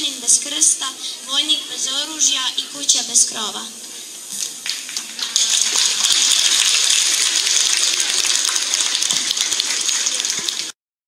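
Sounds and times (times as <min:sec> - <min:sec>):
audience applauding: 0:04.5 - 0:10.8.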